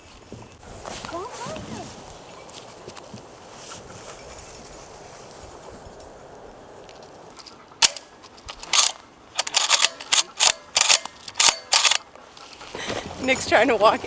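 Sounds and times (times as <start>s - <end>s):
shotgun action clicks: 7.4s - 12.1s.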